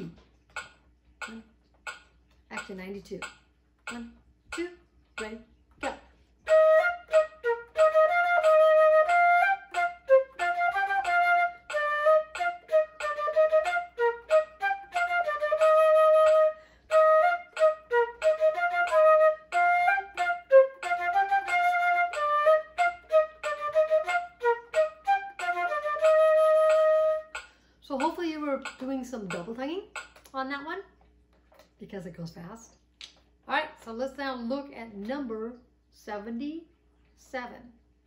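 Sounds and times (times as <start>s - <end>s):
flute playing staccato notes: 6.4s - 28.8s.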